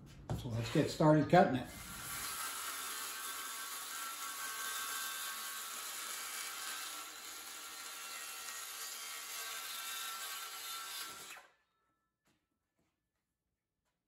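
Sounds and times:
circular saw cutting hardboard: 0:01.6 - 0:11.5.

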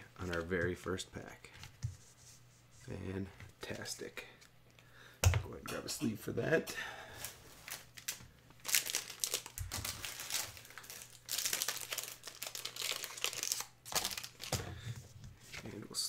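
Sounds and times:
plastic card sleeve crinkling: 0:07.2 - 0:14.6.

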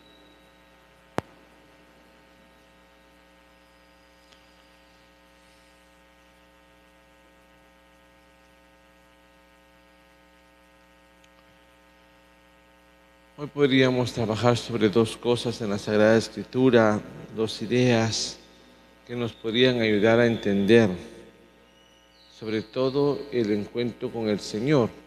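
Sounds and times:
electrical mains hum: 0:00.0 - 0:25.0.

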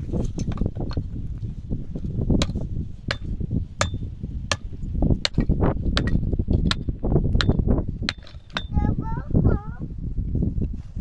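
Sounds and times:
axe chopping wood: 0:02.4 - 0:08.7.

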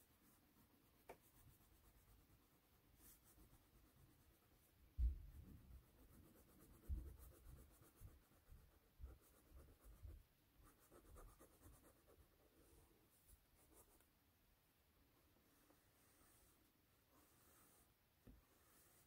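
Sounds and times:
crayon scratching on paper: 0:05.5 - 0:12.5.

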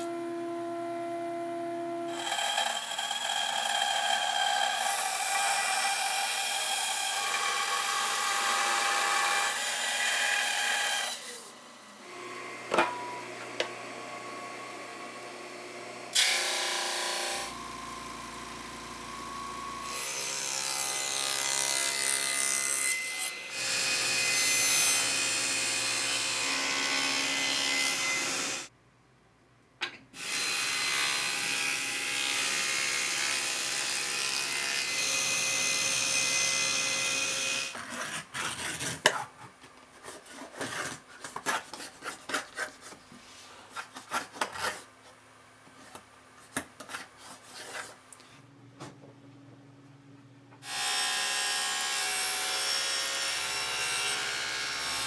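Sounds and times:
table saw cutting: 0:00.0 - 0:28.7, 0:30.2 - 0:37.8, 0:50.6 - 0:55.0
hand plane scraping wood: 0:37.7 - 0:39.3, 0:40.0 - 0:44.9, 0:46.8 - 0:48.0.

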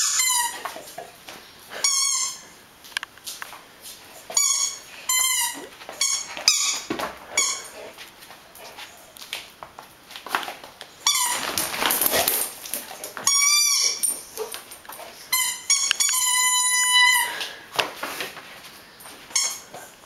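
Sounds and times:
squeaky rubber toy: 0:00.0 - 0:00.7, 0:01.8 - 0:02.4, 0:04.4 - 0:07.7, 0:13.3 - 0:14.0, 0:15.3 - 0:17.3, 0:19.3 - 0:19.6
dog scuffling: 0:02.8 - 0:16.3.

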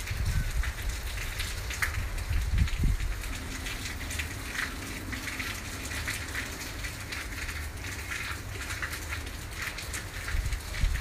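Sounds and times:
wind buffeting microphone: 0:00.0 - 0:05.4, 0:10.1 - 0:11.0
rain falling: 0:00.0 - 0:11.0.

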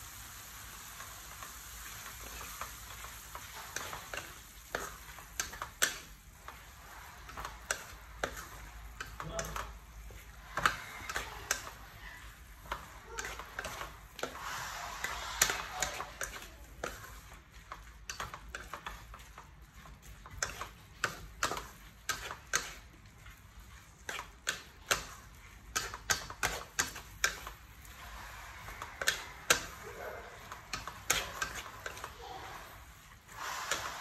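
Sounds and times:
spatula scraping and knocking pan: 0:00.8 - 0:34.0.

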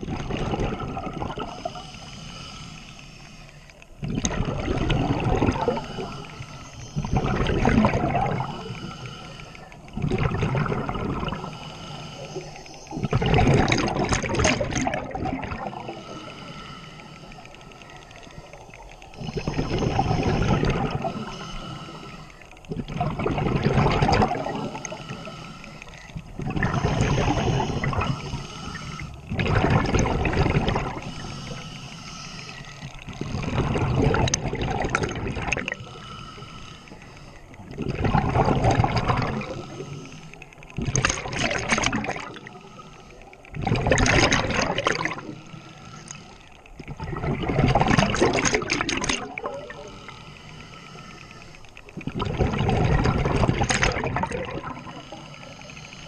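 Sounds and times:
exhaust bubbles: 0:00.0 - 0:01.6, 0:04.0 - 0:06.3, 0:07.0 - 0:08.7, 0:09.9 - 0:11.5, 0:12.9 - 0:16.0, 0:19.2 - 0:21.3, 0:22.7 - 0:25.0, 0:26.3 - 0:28.3, 0:29.2 - 0:31.1, 0:33.1 - 0:35.8, 0:37.6 - 0:39.8, 0:40.7 - 0:42.5, 0:43.5 - 0:45.4, 0:46.8 - 0:49.9, 0:52.0 - 0:55.1
diver breathing through regulator: 0:00.8 - 0:56.0.

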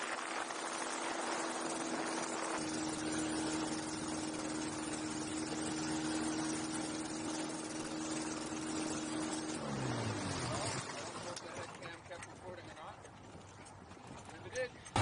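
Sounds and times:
aircraft engine low rumble: 0:00.0 - 0:11.3.

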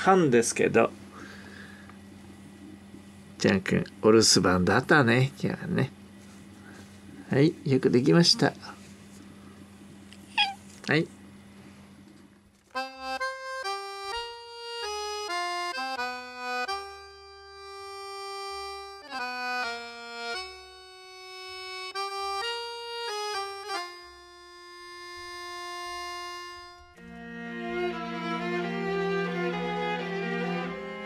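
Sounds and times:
slow melody with soft accompaniment: 0:12.7 - 0:31.0.

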